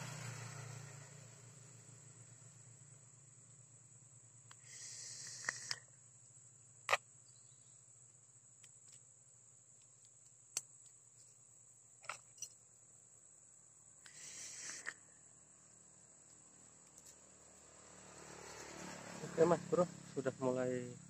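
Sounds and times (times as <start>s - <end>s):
insects chirring: 0.1s - 21.0s
brief hiss: 4.6s - 5.8s, 14.0s - 15.0s.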